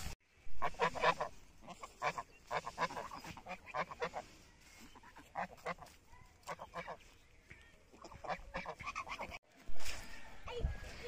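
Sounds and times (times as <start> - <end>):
geese honking: 0.6 - 7.1, 8.0 - 9.4.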